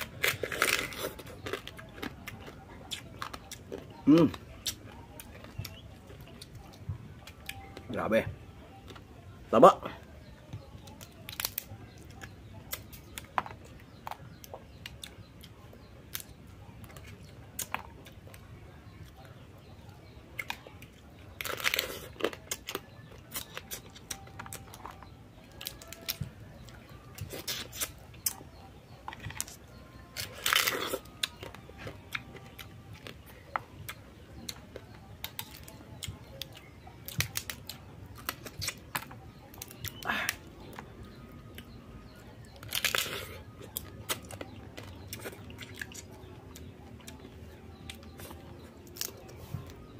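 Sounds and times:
chewing: 0:00.0 - 0:07.9, 0:10.5 - 0:49.9
crab shell cracking: 0:30.2 - 0:31.5, 0:36.4 - 0:40.8, 0:42.6 - 0:46.1.

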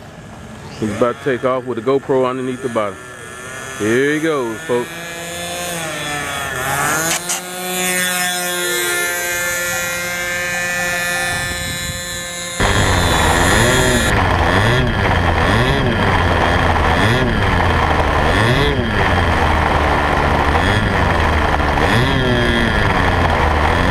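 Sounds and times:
model plane engine buzzing whine: 0:00.0 - 0:23.9.

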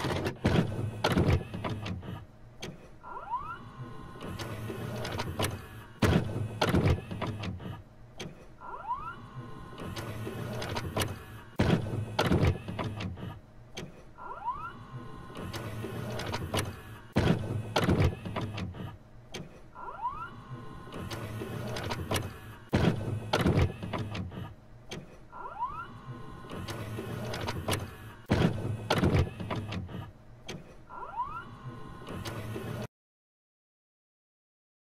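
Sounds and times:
mechanical whirring: 0:00.0 - 0:32.9.

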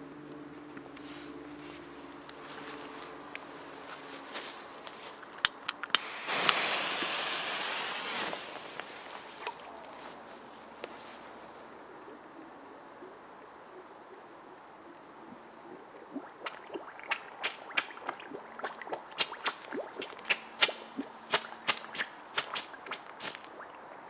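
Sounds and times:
firecracker fizzing: 0:05.9 - 0:09.6
sharp pops and watery plops: 0:16.0 - 0:23.9.

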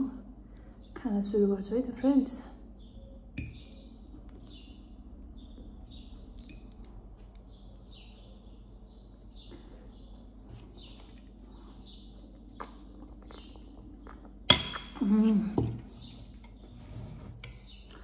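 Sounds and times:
bird chirping: 0:01.9 - 0:14.3.

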